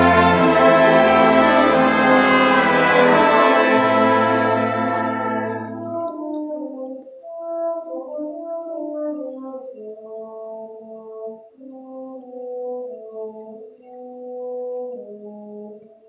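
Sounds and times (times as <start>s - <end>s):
orchestra playing sustained chords: 0.0s - 6.9s.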